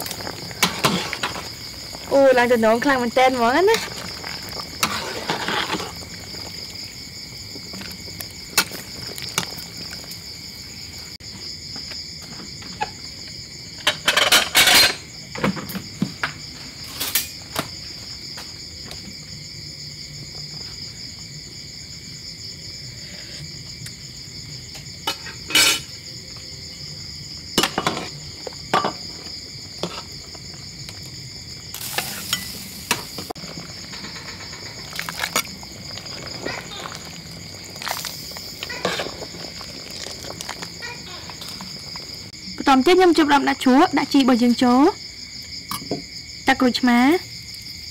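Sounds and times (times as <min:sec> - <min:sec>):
metal ladle scraping pot: 0:00.0 - 0:06.6, 0:25.0 - 0:25.9, 0:31.8 - 0:42.1
crickets chirping: 0:00.0 - 0:47.9.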